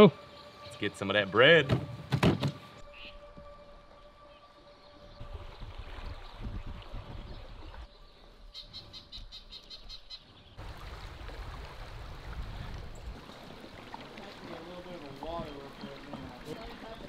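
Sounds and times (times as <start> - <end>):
wind on microphone: 5.1 - 7.9, 10.6 - 13.8
moving water rumble: 10.6 - 17.0.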